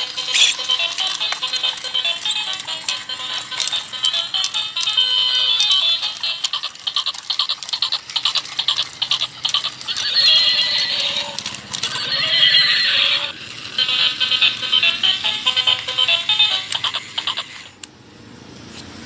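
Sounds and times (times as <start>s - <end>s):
toy horse clicking: 0.0s - 17.9s
tinny recorded horse whinny: 9.9s - 13.4s.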